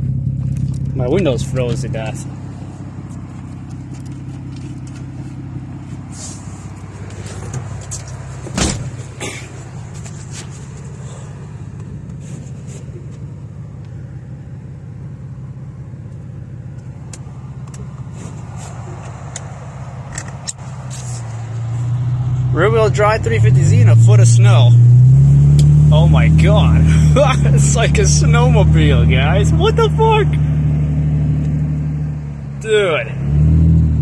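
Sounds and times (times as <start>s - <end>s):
car engine running at low revs: 0.0s - 34.0s.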